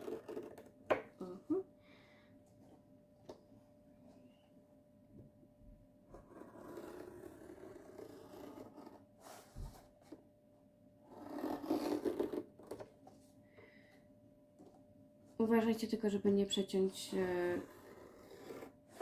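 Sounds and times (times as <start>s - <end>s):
craft knife scraping paper: 11.1s - 12.5s, 17.5s - 19.0s.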